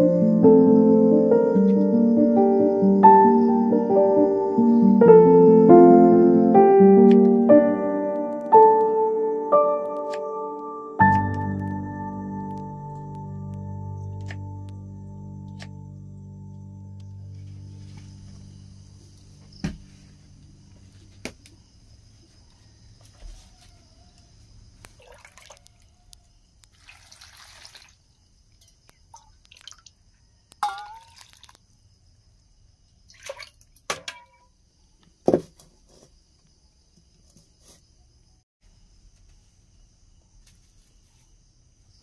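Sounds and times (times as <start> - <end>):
insects chirring: 0.0 - 42.0
water pouring and dripping: 24.8 - 25.9, 26.6 - 31.7, 33.1 - 34.5.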